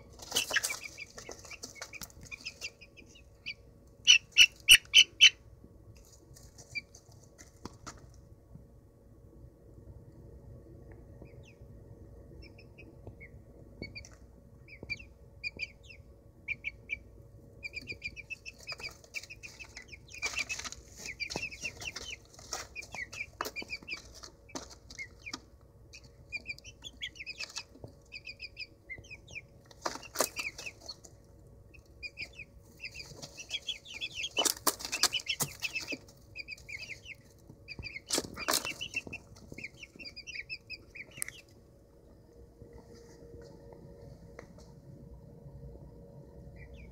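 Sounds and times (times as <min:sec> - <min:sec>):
scuffling in wood shavings: 0:00.0 - 0:02.8, 0:18.5 - 0:25.2
wings flapping: 0:00.0 - 0:03.2, 0:18.1 - 0:25.5, 0:29.7 - 0:31.1, 0:32.1 - 0:41.3
chicks peeping: 0:00.0 - 0:08.3, 0:10.8 - 0:44.8, 0:46.1 - 0:46.9.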